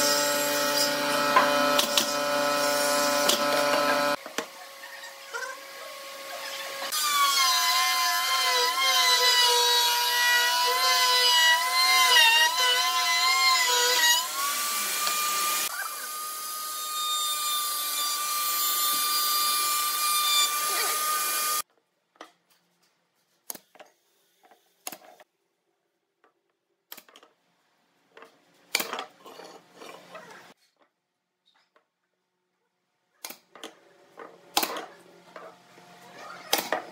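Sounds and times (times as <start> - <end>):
table saw cutting wood: 0.0 - 4.2, 5.4 - 21.6.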